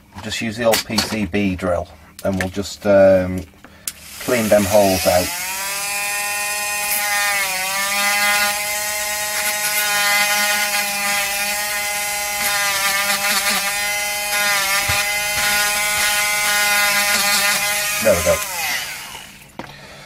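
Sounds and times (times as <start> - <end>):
small drill motor whine: 4.0 - 19.5.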